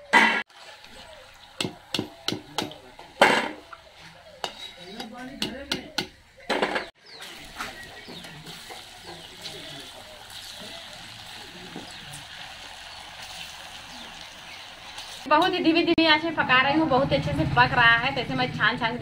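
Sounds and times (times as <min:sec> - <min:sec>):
hot oil sizzling: 0:00.5 - 0:05.7, 0:07.0 - 0:16.3.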